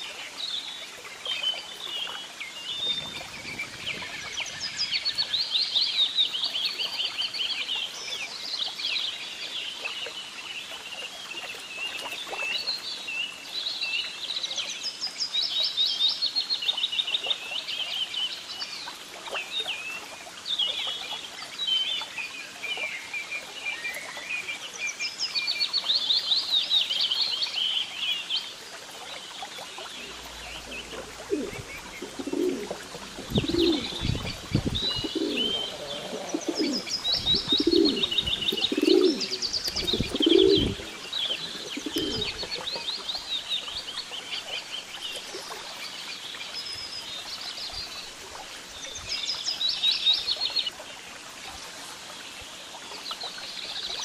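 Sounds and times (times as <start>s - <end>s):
small birds chirping: 23.2s - 48.1s
pigeons cooing: 30.1s - 42.9s.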